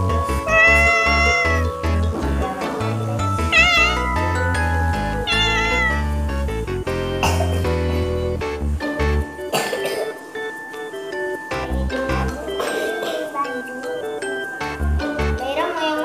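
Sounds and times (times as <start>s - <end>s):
background music with bass line: 0.0s - 9.6s
cat meowing: 0.4s - 1.7s, 3.4s - 4.4s, 5.1s - 6.2s.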